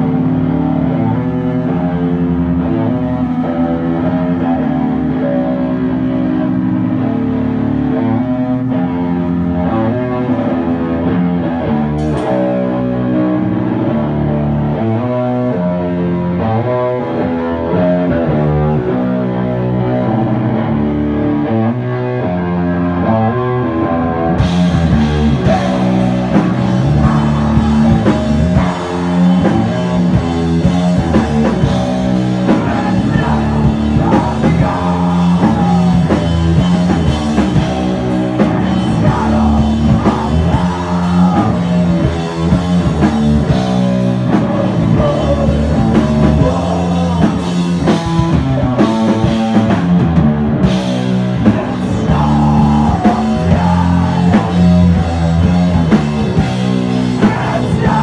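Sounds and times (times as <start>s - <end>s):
distorted electric guitar riff: 0.0s - 58.0s
drum kit and cymbals: 24.4s - 58.0s.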